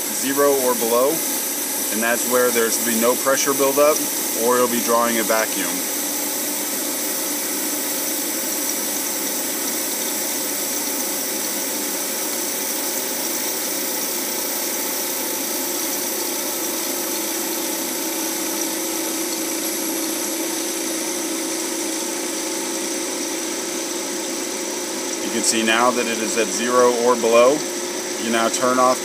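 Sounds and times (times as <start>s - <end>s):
recovery machine motor hum: 0.0s - 11.8s.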